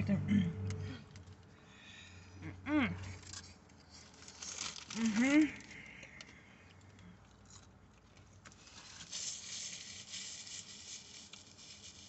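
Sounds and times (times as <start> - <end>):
paper napkin rustling and crackling: 3.4 - 5.7, 8.5 - 12.0.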